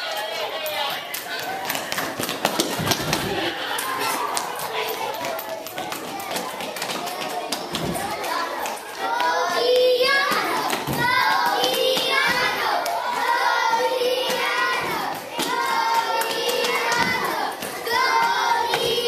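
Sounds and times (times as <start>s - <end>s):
children cheering and calling out: 2.6s - 19.0s
hand clapping: 15.0s - 19.0s.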